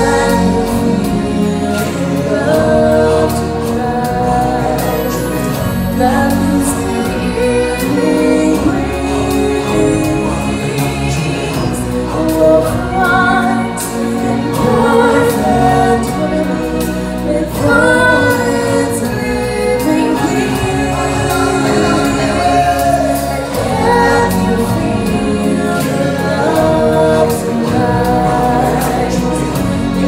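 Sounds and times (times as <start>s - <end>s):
bass and percussion accompaniment: 0.0s - 30.0s
choir and solo voices singing: 0.0s - 30.0s.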